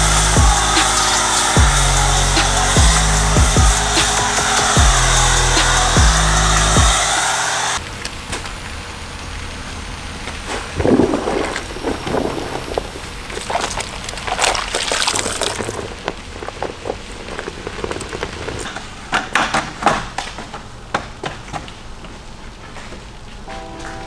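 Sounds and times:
water sloshing and splashing: 10.4s - 18.0s.

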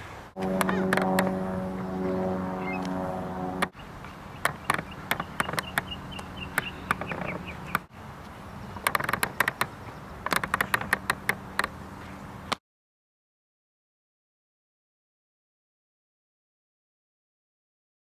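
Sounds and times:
sharp irregular clicks: 4.4s - 7.9s, 8.8s - 11.8s.

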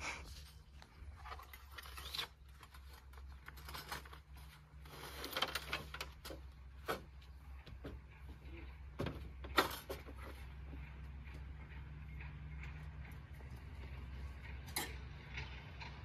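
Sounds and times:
camping gear rustling and clattering: 0.0s - 15.5s.

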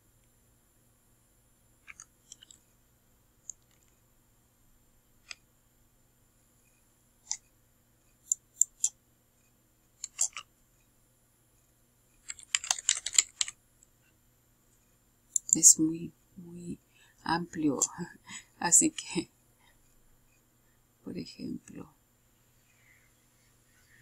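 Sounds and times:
computer keyboard typing: 10.0s - 10.4s, 12.2s - 13.6s, 15.4s - 15.6s.

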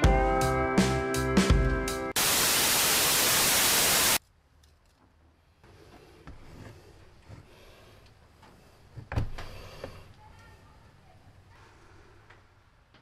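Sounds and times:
static hiss: 2.2s - 4.2s.

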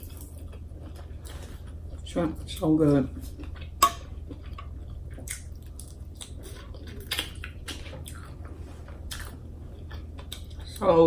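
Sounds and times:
low steady hum: 0.0s - 11.0s
wet chewing and lip smacks: 3.2s - 10.8s.

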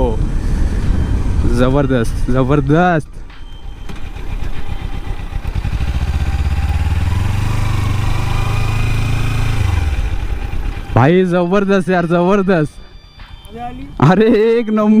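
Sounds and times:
motorcycle engine while riding: 3.4s - 11.4s.

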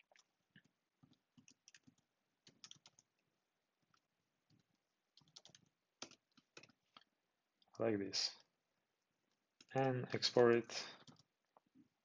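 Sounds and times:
computer keyboard typing: 1.4s - 3.1s, 4.6s - 7.0s, 11.0s - 11.3s.

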